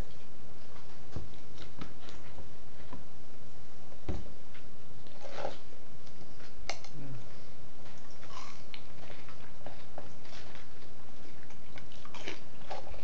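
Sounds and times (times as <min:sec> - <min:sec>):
person chewing food: 0:07.8 - 0:13.0.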